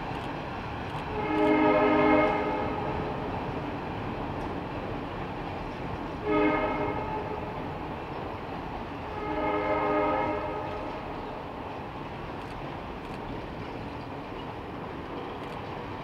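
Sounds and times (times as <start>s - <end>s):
train cars rumbling over bridge: 0.0s - 16.0s
steam whistle blasts: 1.1s - 3.0s, 6.2s - 7.4s, 9.1s - 11.0s.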